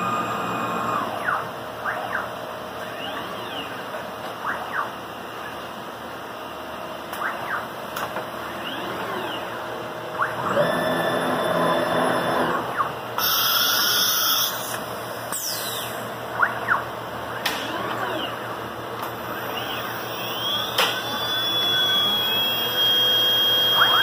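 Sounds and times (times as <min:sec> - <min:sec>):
vacuum pump and dust collector: 0:00.0 - 0:01.2, 0:10.2 - 0:16.2, 0:19.0 - 0:24.0
cnc router motors whining: 0:00.0 - 0:04.0, 0:08.4 - 0:24.0.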